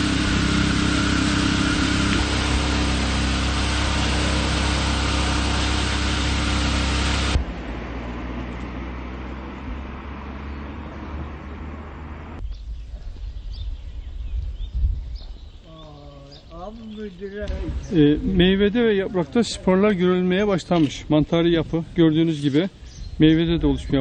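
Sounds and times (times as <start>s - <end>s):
engine-driven sprayer pump running: 0.0s - 8.7s
birds chirping: 9.5s - 20.4s, 21.9s - 24.0s.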